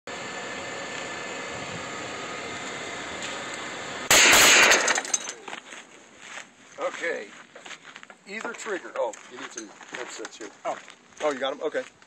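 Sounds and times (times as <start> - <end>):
minigun burst: 4.1 - 5.2.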